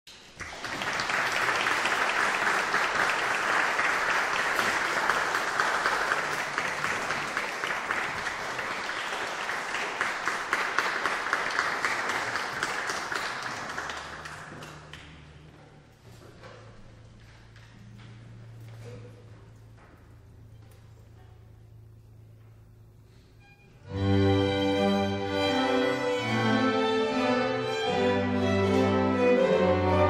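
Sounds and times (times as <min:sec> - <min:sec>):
audience applauding: 0:00.2 - 0:15.3.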